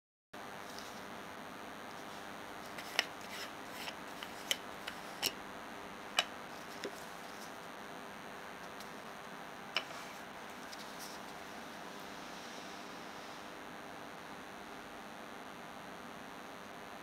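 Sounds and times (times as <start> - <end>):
steady hiss: 0.6 - 14.6
lens cap clicking and rubbing: 2.7 - 5.4.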